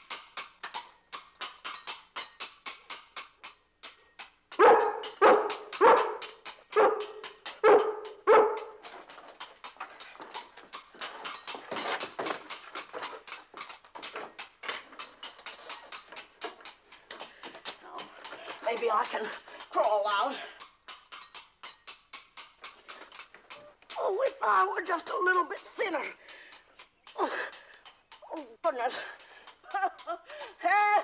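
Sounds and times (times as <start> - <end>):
dog barking: 4.6 - 8.8.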